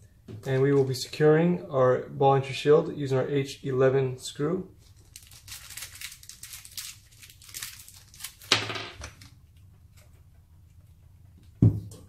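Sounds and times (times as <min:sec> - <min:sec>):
plastic bag crinkling: 0:04.8 - 0:09.3
knock: 0:11.6 - 0:12.0.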